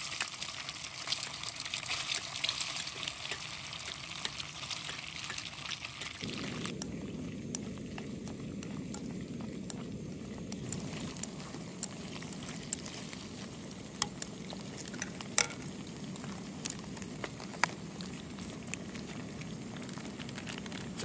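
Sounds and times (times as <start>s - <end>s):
sausage sizzling in a pan: 0.0s - 21.0s.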